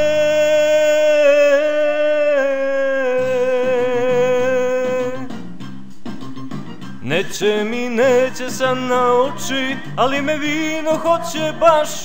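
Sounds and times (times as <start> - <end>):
man singing long note: 0.0 - 5.3
backing band playing: 3.2 - 12.0.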